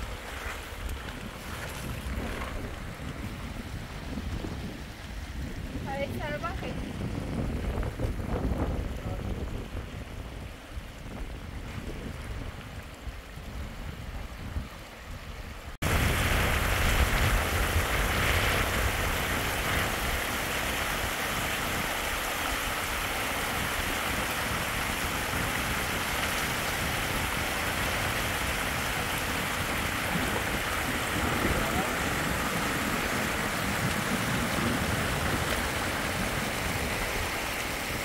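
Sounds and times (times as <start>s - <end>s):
heavy rain falling: 15.8s - 38.0s.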